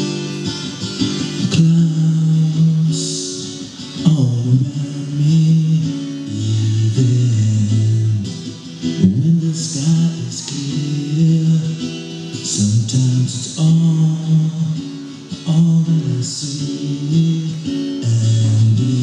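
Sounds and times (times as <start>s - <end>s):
acoustic guitar chords: 0.0s - 19.0s
person singing: 0.0s - 19.0s.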